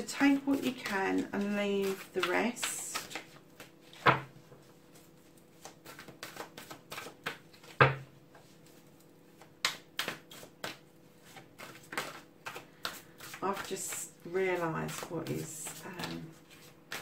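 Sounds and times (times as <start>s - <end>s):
cards being shuffled: 0.2s - 17.0s.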